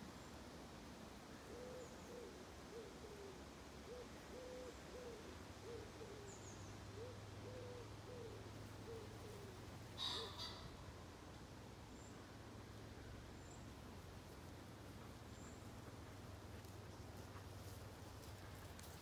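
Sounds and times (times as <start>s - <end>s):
low steady hum: 0.0s - 19.0s
low hooting bird calls: 1.4s - 11.1s.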